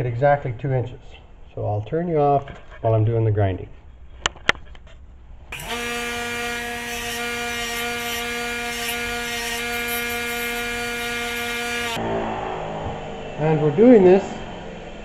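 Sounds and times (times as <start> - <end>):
grinding hiss: 5.5 - 12.0
high-pitched motor hum: 5.5 - 12.0.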